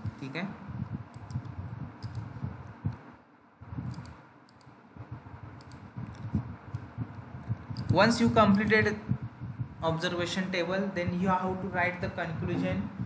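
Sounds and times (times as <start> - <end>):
computer mouse clicking: 1.1 - 3.0, 3.8 - 4.8, 5.5 - 6.9, 7.5 - 8.7
low thuds: 5.0 - 9.9.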